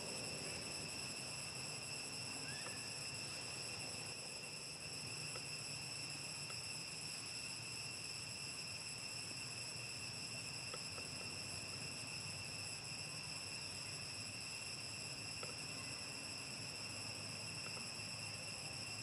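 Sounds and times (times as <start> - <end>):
high-pitched insect chorus: 0.0 - 19.0
faint soft ticks: 10.7 - 11.3, 15.4 - 15.6, 17.6 - 17.9.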